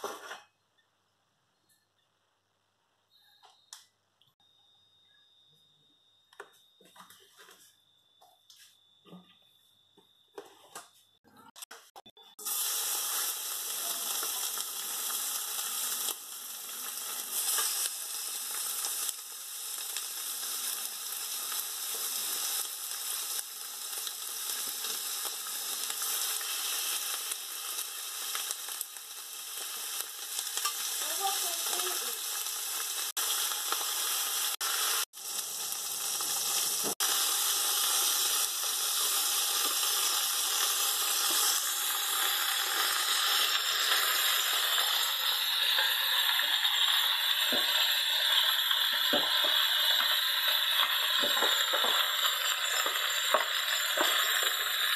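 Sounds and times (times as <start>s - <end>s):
chicken sizzling in oil: 11.3s - 54.9s.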